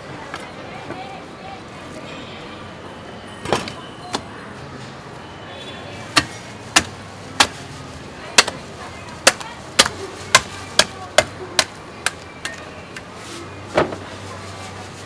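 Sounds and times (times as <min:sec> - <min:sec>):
cleaver chopping meat: 0:06.2 - 0:07.6, 0:08.4 - 0:08.6, 0:09.2 - 0:13.1.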